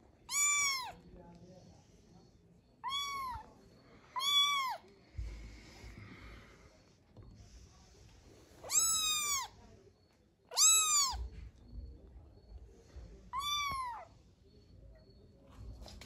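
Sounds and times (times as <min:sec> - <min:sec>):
kitten meowing: 0:00.3 - 0:01.0, 0:02.8 - 0:03.5, 0:04.2 - 0:04.8, 0:08.6 - 0:09.5, 0:10.5 - 0:11.2, 0:13.3 - 0:14.1.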